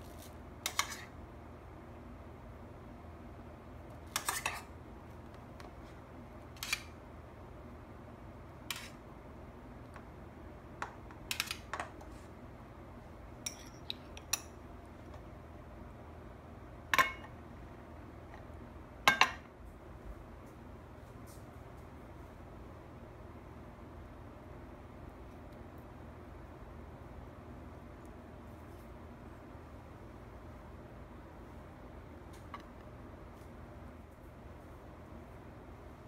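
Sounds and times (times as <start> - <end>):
metal spoon clinking on tin: 13.4 - 14.5.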